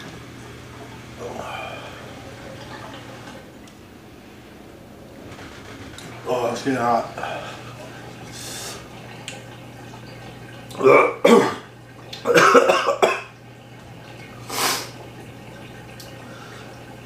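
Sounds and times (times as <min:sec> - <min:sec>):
man coughing: 0:10.8 - 0:11.7, 0:12.3 - 0:13.3.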